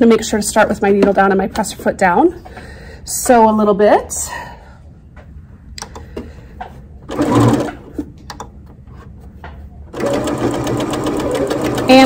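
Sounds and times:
sewing machine stitching: 7.1s - 7.9s, 9.9s - 12.0s.

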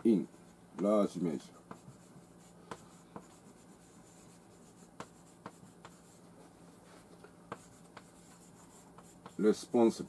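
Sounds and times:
chalk scratching on blackboard: 0.8s - 9.7s
chalk tapping on board: 1.6s - 6.2s, 7.5s - 9.6s.

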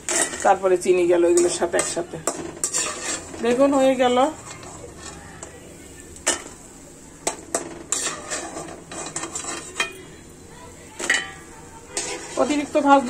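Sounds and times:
metal utensils clinking on dishware: 0.0s - 0.6s, 1.3s - 6.6s, 7.2s - 10.1s, 11.0s - 13.0s.

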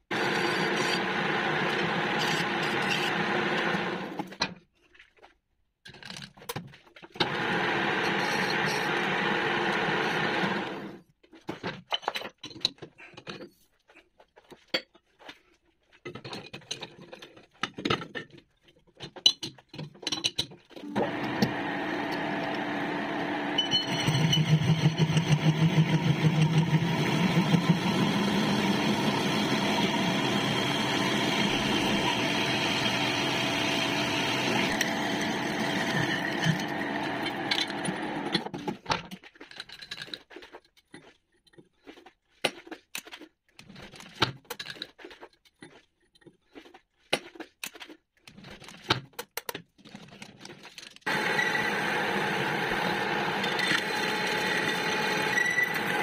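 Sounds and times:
metal lathe cutting metal: 0.1s - 4.1s, 7.2s - 10.9s, 20.9s - 38.4s, 51.1s - 56.0s.

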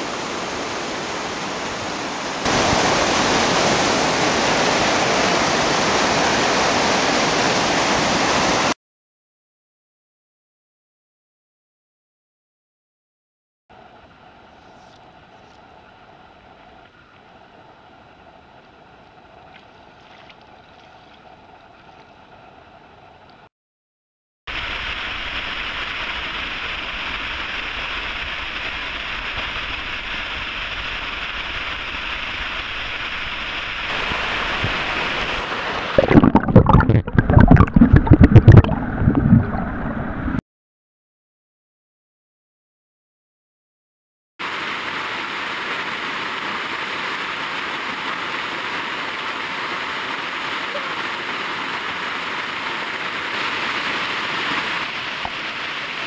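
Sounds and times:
small waterfall rushing: 0.0s - 8.8s, 24.5s - 36.4s, 44.4s - 56.0s
creek trickling: 13.8s - 23.4s, 33.9s - 39.6s
underwater gurgling: 34.4s - 40.4s.

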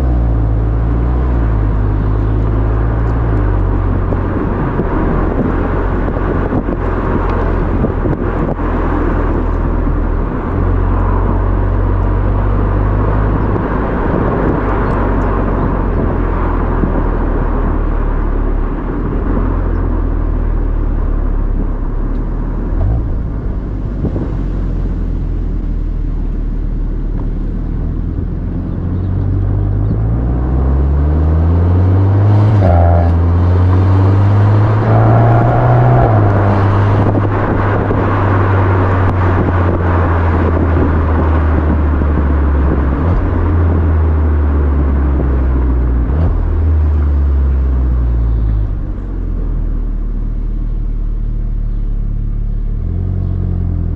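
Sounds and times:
road and wind noise: 0.0s - 53.9s
car exhaust note: 18.6s - 53.9s.

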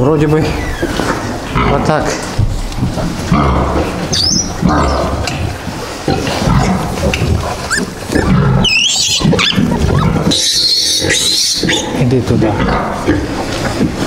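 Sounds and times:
piglets squealing: 0.4s - 1.8s, 4.1s - 5.2s, 7.5s - 12.0s
sow grunting: 6.1s - 13.3s.

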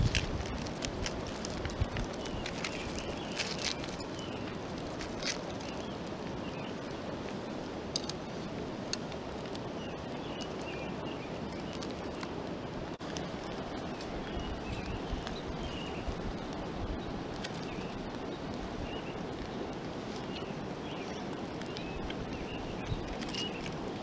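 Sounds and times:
foil crinkling: 0.0s - 5.9s
steady outdoor rushing noise: 0.0s - 24.0s.

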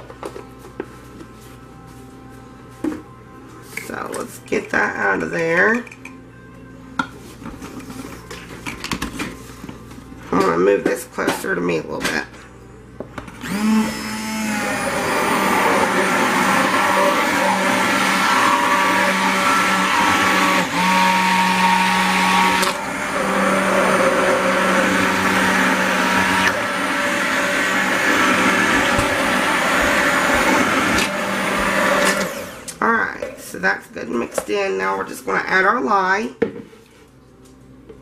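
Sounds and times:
stick blender motor hum: 13.4s - 32.8s.

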